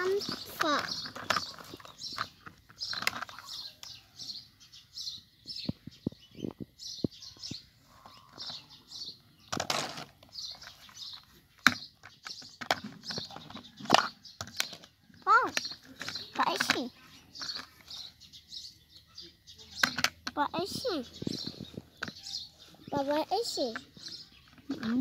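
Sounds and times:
plastic toy trucks knocking: 11.6 - 18.0, 19.8 - 21.4.

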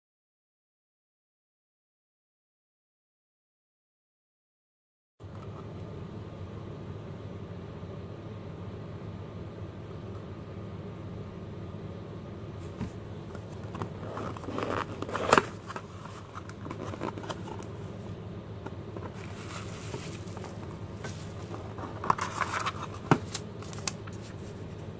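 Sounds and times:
steady low hum: 5.2 - 24.9
cardboard box rustling and clicking: 12.6 - 17.7, 19.0 - 24.7
bubble wrap rustling: 12.6 - 18.1, 19.0 - 24.9.

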